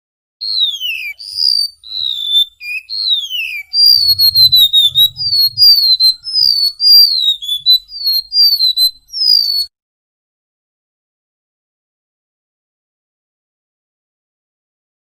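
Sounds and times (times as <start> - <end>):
bird whistling descending notes: 3.8 - 6.7.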